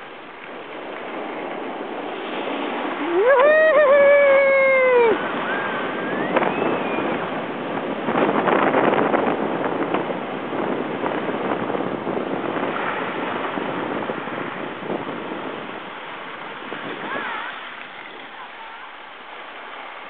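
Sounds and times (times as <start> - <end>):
skis scraping over snow: 0.0 - 3.5, 9.4 - 20.0
wind on microphone: 0.0 - 20.0.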